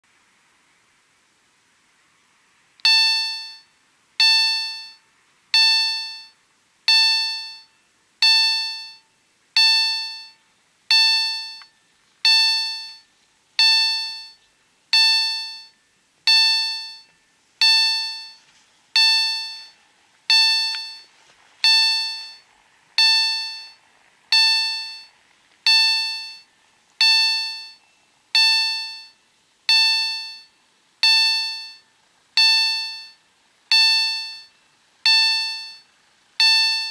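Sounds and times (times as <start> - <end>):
level crossing bell dinging: 2.8 - 3.6, 4.2 - 5.0, 5.6 - 6.3, 6.9 - 9.0, 9.6 - 13.0, 13.6 - 18.4, 19.0 - 22.4, 23.0 - 25.1, 25.7 - 31.8, 32.4 - 34.5, 35.1 - 35.8, 36.4 - 36.9.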